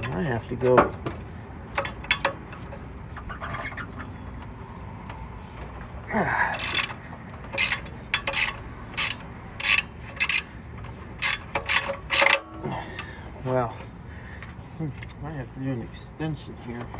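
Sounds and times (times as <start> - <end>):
socket ratchet clicking: 6.5 - 12.5.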